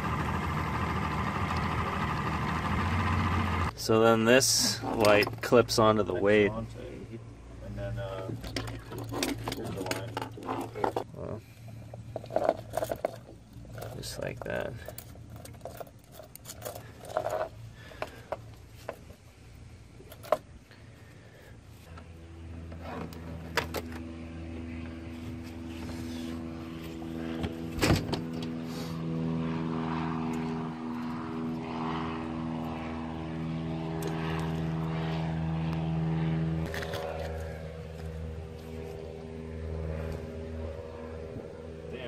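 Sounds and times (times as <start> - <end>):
outboard motor idling: 0.0 - 3.7.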